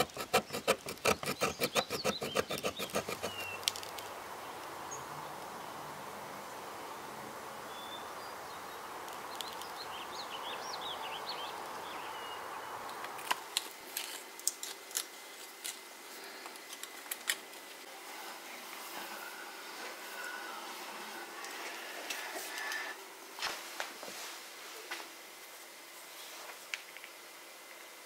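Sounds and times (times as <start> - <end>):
bird chirps: 0.5 - 3.7.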